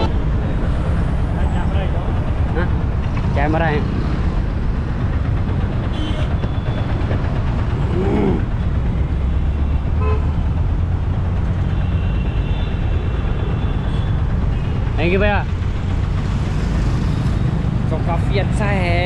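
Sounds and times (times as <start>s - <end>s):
auto-rickshaw engine and road rumble: 0.0s - 19.0s
vehicle horns honking: 5.9s - 6.8s, 10.0s - 10.4s.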